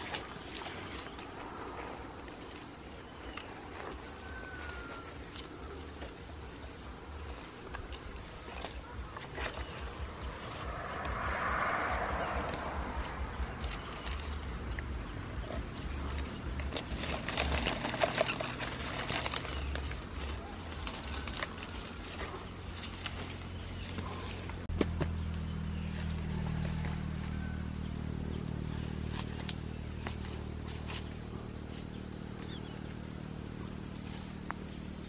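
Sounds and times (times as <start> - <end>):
insects droning: 0.0 - 35.0
leaves rustling on branch: 7.2 - 24.6.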